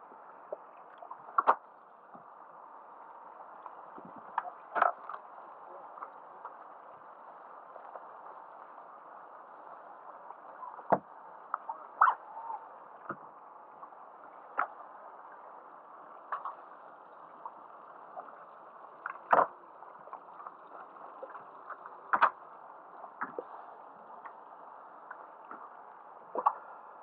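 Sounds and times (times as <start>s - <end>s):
muffled water rush: 0.0s - 27.0s
water lapping: 10.1s - 27.0s.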